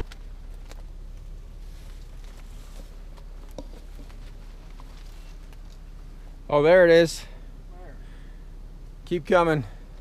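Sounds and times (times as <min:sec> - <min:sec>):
light ticks and crackles: 0:00.0 - 0:06.1, 0:09.0 - 0:09.3
low steady rumble: 0:00.0 - 0:10.0.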